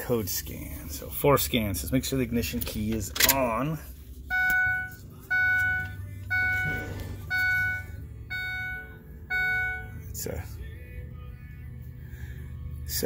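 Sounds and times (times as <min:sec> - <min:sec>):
dashboard warning chime beeps: 0:04.3 - 0:10.2.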